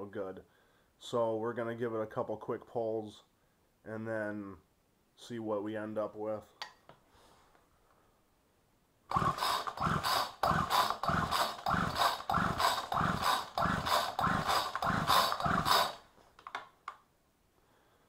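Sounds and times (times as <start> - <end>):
pull-starter cranking engine: 9.1 - 16.0.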